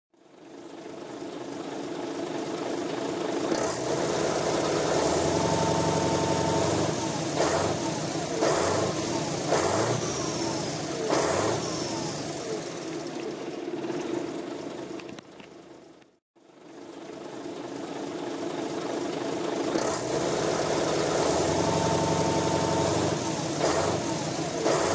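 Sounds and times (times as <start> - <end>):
diesel truck engine revving: 3.4 - 13.1, 19.6 - 24.9.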